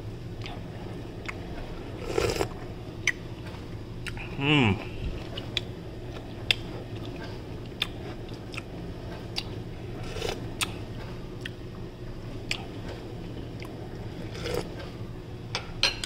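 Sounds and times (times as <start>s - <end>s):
faint low hum: 0.0s - 16.0s
person chewing noodles: 0.4s - 3.2s, 4.0s - 8.7s, 9.3s - 10.8s, 11.4s - 11.6s, 12.4s - 14.8s.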